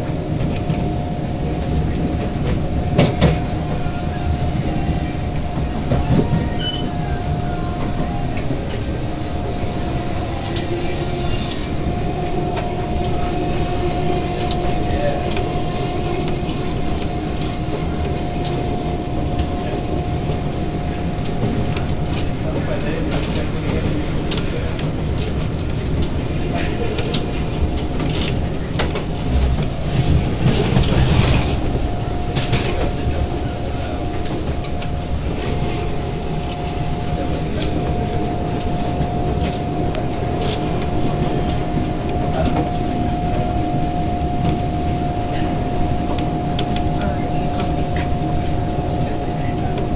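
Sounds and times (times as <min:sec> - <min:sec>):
high whine: 0:00.0 - 0:49.9
train wheels rumbling on rail: 0:00.0 - 0:49.9.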